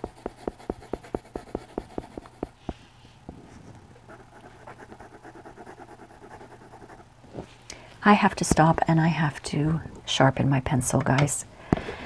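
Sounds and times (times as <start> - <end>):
colored pencil shading on paper: 0.0 - 2.8, 4.1 - 7.0.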